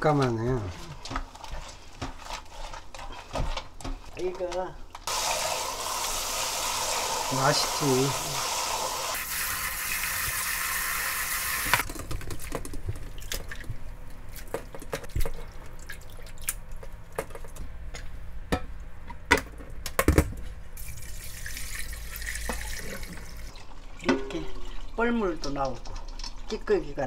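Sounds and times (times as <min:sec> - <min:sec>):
water pouring: 0:05.1 - 0:11.8, 0:20.8 - 0:26.6
water sloshing in a bowl: 0:12.4 - 0:16.9
water drips and splashes: 0:15.2 - 0:16.8, 0:20.9 - 0:26.7.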